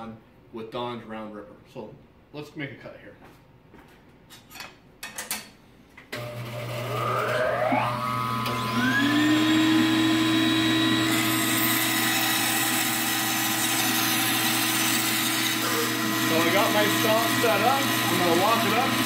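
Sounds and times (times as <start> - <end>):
bandsaw blade whine rising: 6.2 - 13.0
bandsaw motor hum: 6.2 - 19.0.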